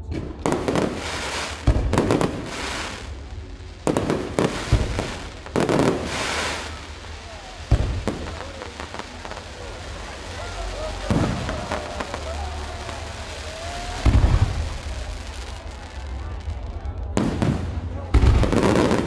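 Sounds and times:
hiss of falling sparks: 0.6 - 3.2, 4.0 - 16.1.

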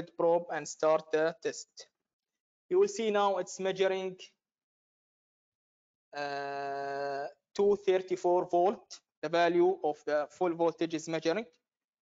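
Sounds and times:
man saying uhh: 6.2 - 7.3.

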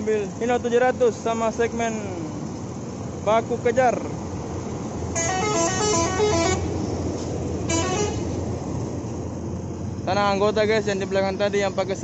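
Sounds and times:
diesel engines running: 0.0 - 12.0
truck horn playing a tune: 5.1 - 6.8, 7.6 - 8.4.

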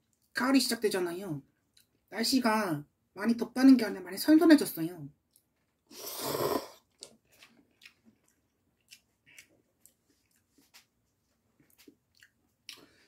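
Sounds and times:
chewing with wet mouth clicks: 5.3 - 5.6, 6.9 - 10.9, 11.6 - 13.0
person slurping noodles: 5.9 - 6.9.

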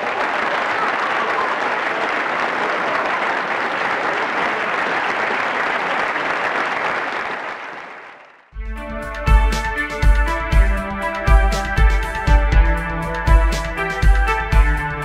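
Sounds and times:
crowd applauding: 0.0 - 8.6.

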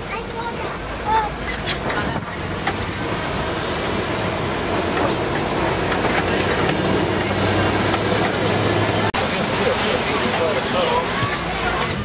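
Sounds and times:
truck engine and road rumble: 0.0 - 12.0
vehicle knocks and rattles: 4.8 - 9.0.

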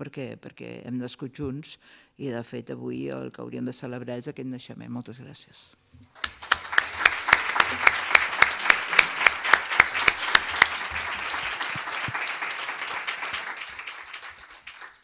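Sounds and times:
audience applause: 6.2 - 15.0
sharp claps close to microphone: 6.2 - 15.0.

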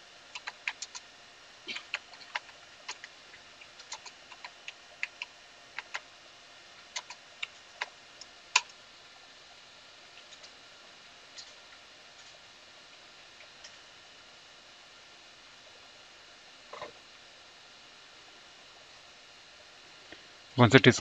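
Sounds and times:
computer keyboard keys clicking: 0.3 - 1.0, 1.7 - 6.0, 6.9 - 7.9.

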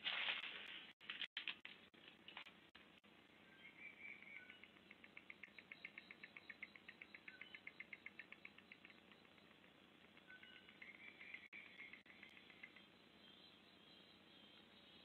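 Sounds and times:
high-pitched chirping: 3.6 - 15.0.

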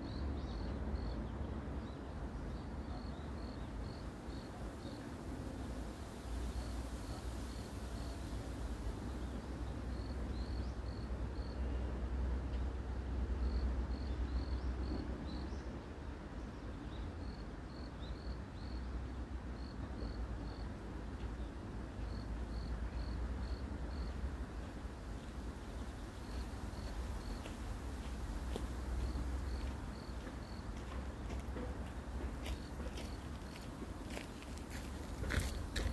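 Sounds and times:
insect chirping: 2.8 - 5.0, 6.4 - 11.6, 22.0 - 24.2, 25.6 - 30.7.

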